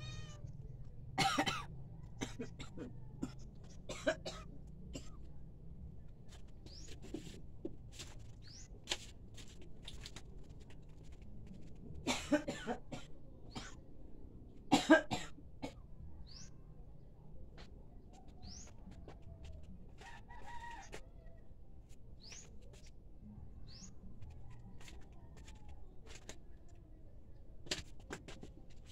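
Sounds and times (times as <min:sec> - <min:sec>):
person coughing: 0:01.2 - 0:04.4.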